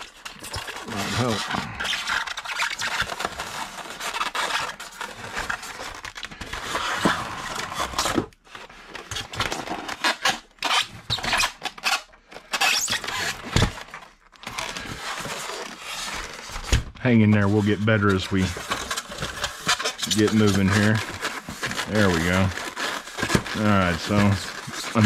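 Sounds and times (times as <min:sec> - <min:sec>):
foam rubbing and scraping: 0:00.0 - 0:13.7, 0:14.5 - 0:25.0.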